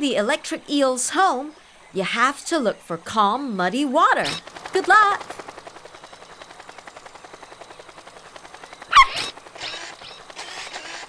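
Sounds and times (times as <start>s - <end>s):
cartoon propeller whirring: 3.9s - 11.0s.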